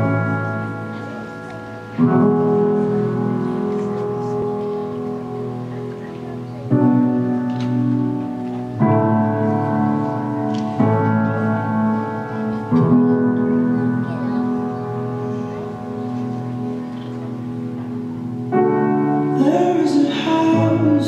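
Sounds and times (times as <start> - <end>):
slow piano chords: 0.0 - 21.0.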